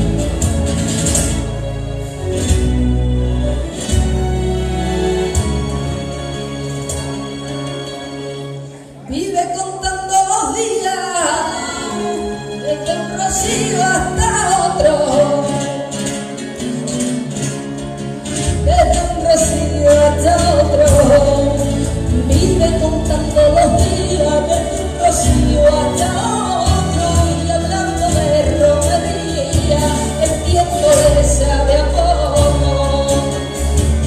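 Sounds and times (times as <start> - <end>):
bass line: 0.0 - 6.7, 18.5 - 34.0
percussion: 0.0 - 8.5, 12.1 - 34.0
acoustic guitar: 0.0 - 34.0
woman singing into microphone: 9.1 - 16.1, 18.6 - 34.0.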